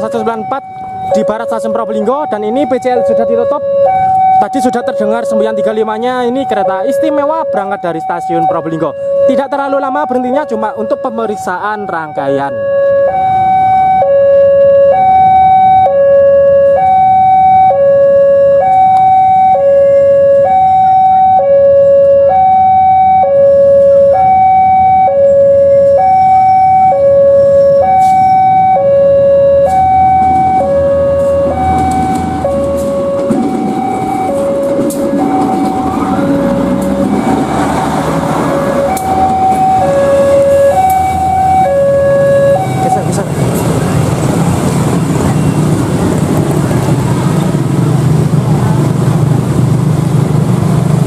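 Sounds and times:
two-tone crossing alarm: 0:00.0 - 0:46.2
diesel train rumble: 0:16.6 - 0:51.0.

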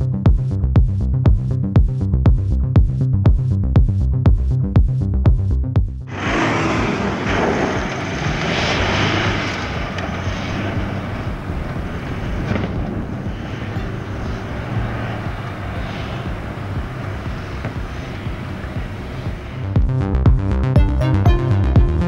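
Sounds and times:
truck engine: 0:06.1 - 0:19.7.

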